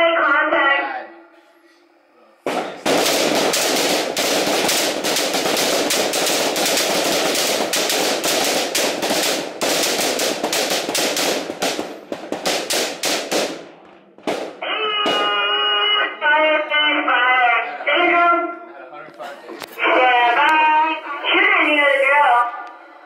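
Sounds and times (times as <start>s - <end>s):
rifles firing: 2.5s - 15.5s.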